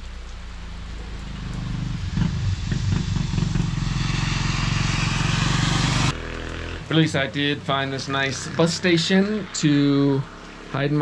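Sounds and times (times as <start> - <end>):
car engine hum: 0.0 - 6.2
falling rain: 0.0 - 11.0
tyres hissing on wet road: 0.0 - 11.0.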